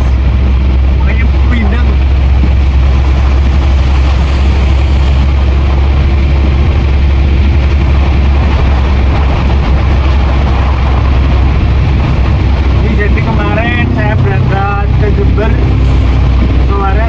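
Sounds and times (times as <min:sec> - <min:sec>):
diesel truck engine droning: 0:00.0 - 0:17.0
heavy rain on wet road: 0:00.0 - 0:17.0.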